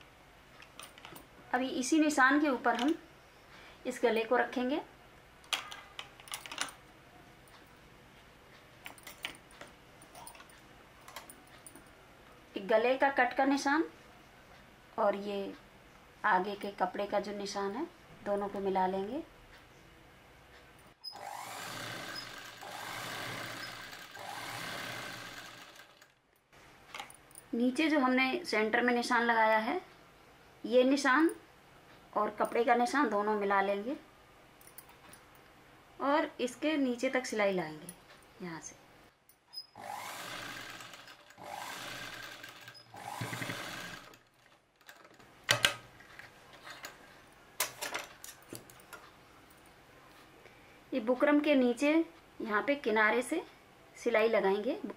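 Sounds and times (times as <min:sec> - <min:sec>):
electric sewing machine stitching: 0:21.1 - 0:26.1, 0:39.8 - 0:44.3
sharp clicks and knocks: 0:44.2 - 0:47.0.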